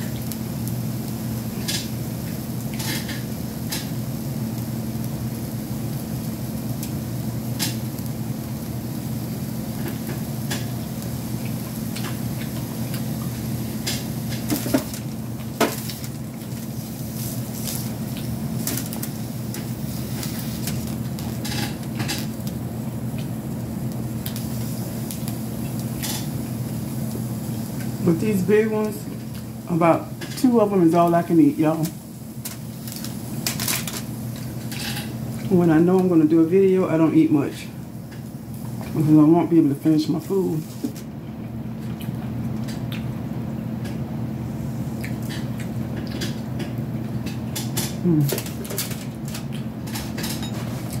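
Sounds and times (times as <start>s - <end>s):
steady electric hum: 0.0s - 51.0s.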